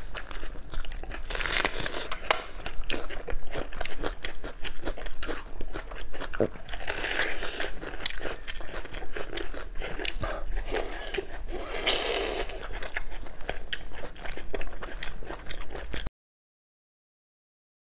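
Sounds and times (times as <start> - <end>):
person chewing meat: 0.0 - 16.1.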